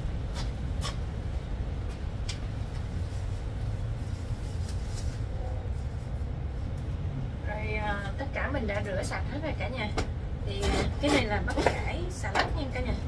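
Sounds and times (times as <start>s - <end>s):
low background rumble: 0.0s - 13.0s
plastic gloves rustling: 2.5s - 6.8s.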